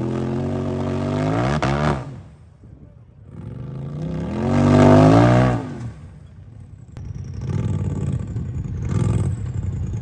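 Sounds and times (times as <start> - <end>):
engine revving: 0.0 - 2.3, 3.3 - 6.1, 7.0 - 10.0.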